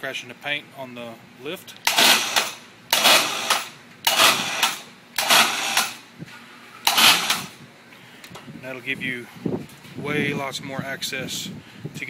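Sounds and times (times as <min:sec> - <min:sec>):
shop hoist mechanical bursts: 0:01.8 - 0:06.1, 0:06.8 - 0:07.6.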